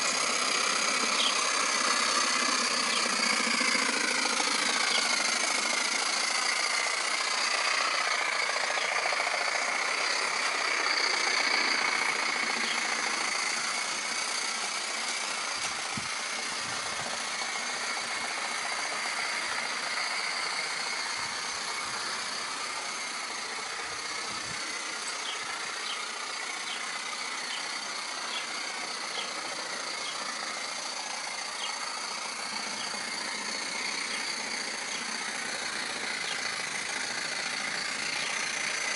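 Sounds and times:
mechanical rattle: 0:00.0 - 0:38.9
model steam locomotive hissing: 0:00.0 - 0:38.9.

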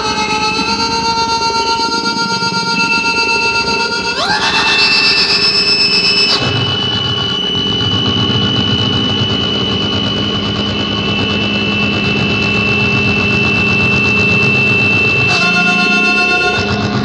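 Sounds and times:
engine-like noise drone: 0:00.0 - 0:17.0
low hum: 0:00.0 - 0:17.0
sustained high tone: 0:00.0 - 0:17.0.

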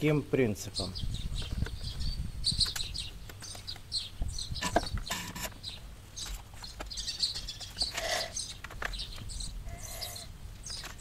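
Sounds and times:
small birds chirping: 0:00.0 - 0:11.0
pitched animal call: 0:09.6 - 0:10.3.

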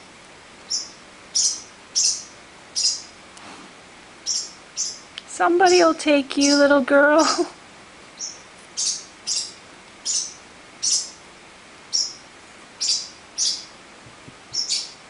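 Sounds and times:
parrotlets chirping: 0:00.6 - 0:03.2, 0:04.2 - 0:07.4, 0:08.1 - 0:11.2, 0:11.9 - 0:13.8, 0:14.5 - 0:15.0.

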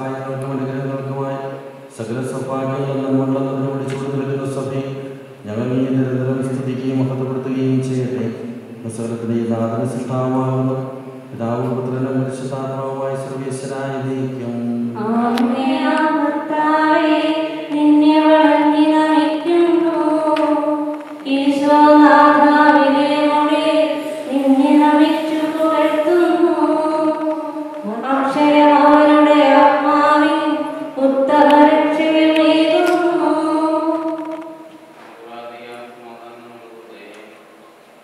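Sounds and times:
man singing low chant: 0:00.0 - 0:15.5
higher voice singing long notes: 0:14.2 - 0:34.9.

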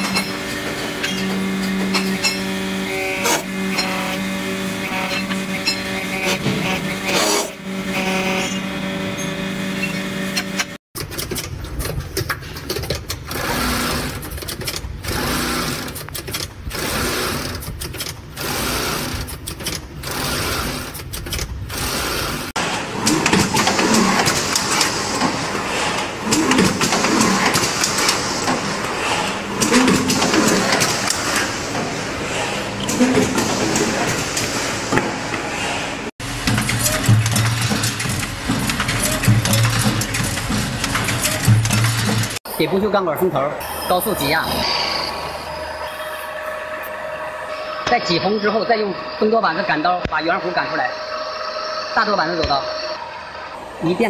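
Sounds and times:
coil winding machine whirring: 0:00.0 - 0:10.8, 0:13.3 - 0:43.0
steady machine hum: 0:00.0 - 0:10.8, 0:21.6 - 0:54.0
machine clatter: 0:00.0 - 0:42.4.

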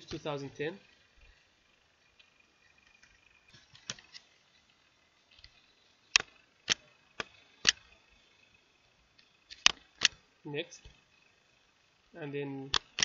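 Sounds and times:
computer mouse clicks: 0:05.3 - 0:07.9.

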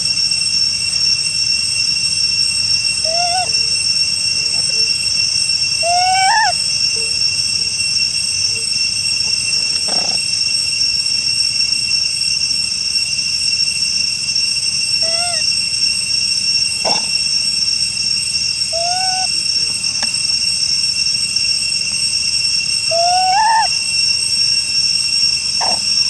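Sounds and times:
cicadas droning: 0:00.0 - 0:26.0
macaque calls: 0:03.0 - 0:03.8, 0:05.8 - 0:07.2, 0:09.8 - 0:10.3, 0:15.0 - 0:15.5, 0:16.9 - 0:17.2, 0:18.7 - 0:19.4, 0:22.9 - 0:23.8, 0:25.6 - 0:26.0.

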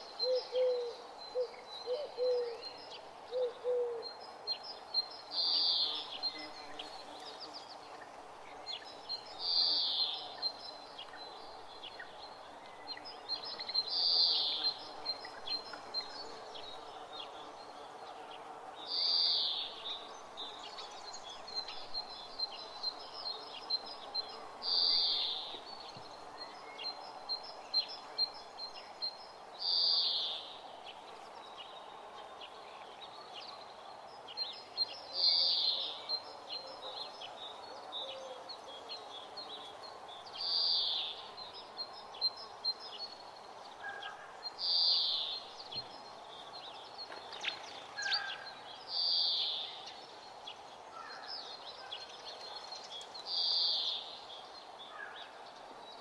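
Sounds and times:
bird singing loud song phrase: 0:00.0 - 0:56.0
small birds chirping and trilling: 0:00.0 - 0:56.0
dove cooing: 0:00.2 - 0:02.6, 0:03.3 - 0:04.1.

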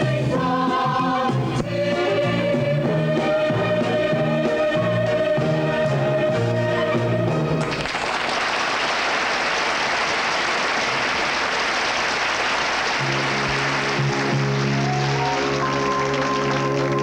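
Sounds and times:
song: 0:00.0 - 0:07.6, 0:12.9 - 0:17.0
music: 0:00.0 - 0:07.8, 0:12.5 - 0:17.0
studio audience applause: 0:07.6 - 0:17.0.

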